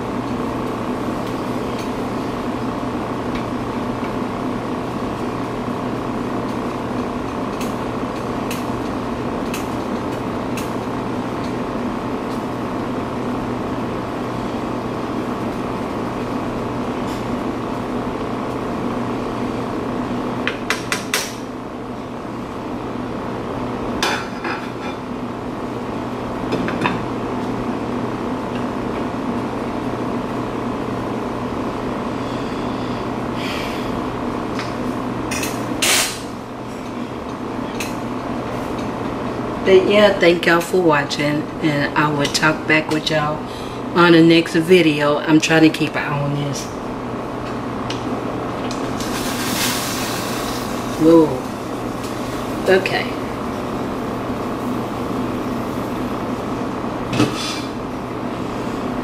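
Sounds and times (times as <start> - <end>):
steady mechanical hum: 0.0 - 59.0.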